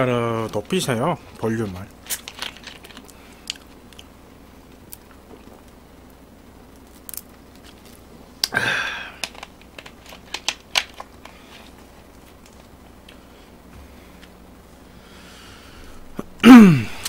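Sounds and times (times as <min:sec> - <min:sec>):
person exhaling: 0:08.5 - 0:09.2, 0:14.9 - 0:17.0.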